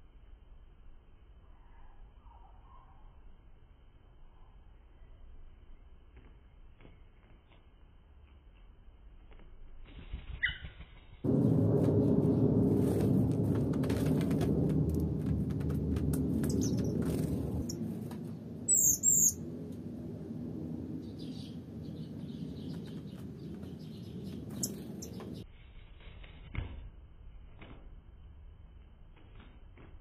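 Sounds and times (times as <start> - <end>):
loud low rumbling noise: 11.2 - 25.4
songbird chirping: 16.4 - 17.8, 18.7 - 19.4, 21.0 - 25.4.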